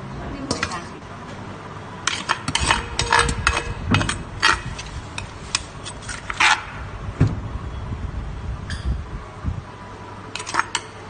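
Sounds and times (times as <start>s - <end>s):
spoon scraping in a mortar: 2.1s - 6.7s, 10.4s - 10.9s.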